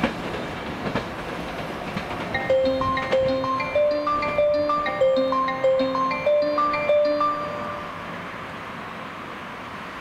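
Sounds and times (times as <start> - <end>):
bell-like chime melody: 2.4 - 8.1.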